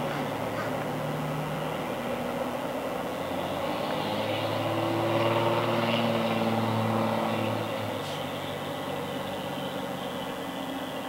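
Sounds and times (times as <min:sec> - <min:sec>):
train wheels rumbling on rails: 0:00.0 - 0:01.4.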